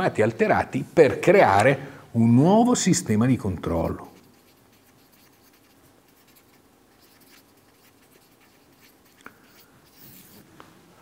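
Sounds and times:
marker scratching on paper: 0:03.7 - 0:10.5.

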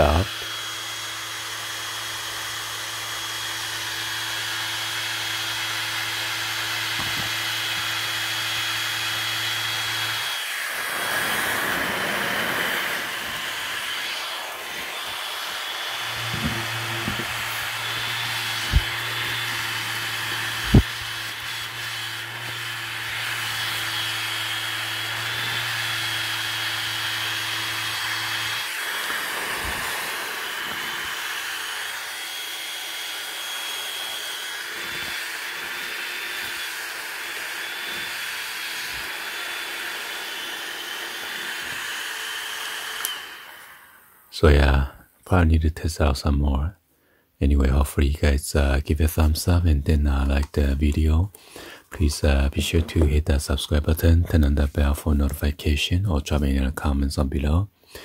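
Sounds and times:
small fan motor humming: 0:00.0 - 0:44.1.

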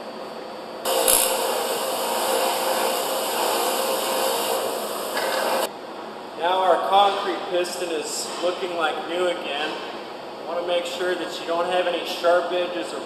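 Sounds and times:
grinder running hum: 0:00.9 - 0:05.7
sharp click: 0:01.0 - 0:01.4.

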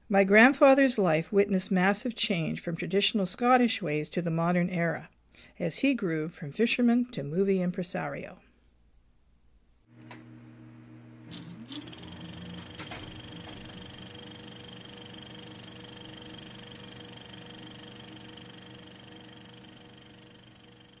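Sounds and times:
small machine humming: 0:09.9 - 0:21.0
clicks: 0:10.0 - 0:10.3
short rising whine: 0:10.2 - 0:21.0.

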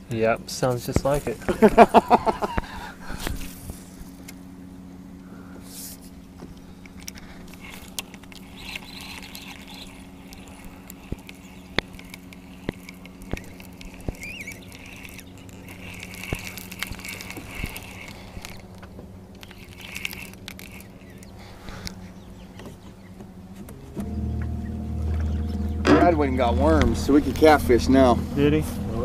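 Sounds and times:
boat motor humming: 0:00.0 - 0:29.0
bird chirp: 0:07.6 - 0:18.7, 0:19.4 - 0:26.6.

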